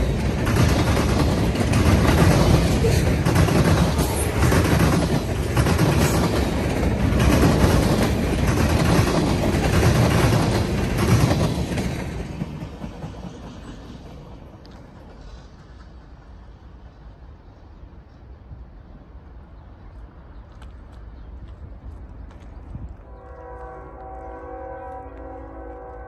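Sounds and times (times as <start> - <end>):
wheels clicking over rail joints: 0.0 - 16.6
freight train cars rolling past: 0.0 - 26.0.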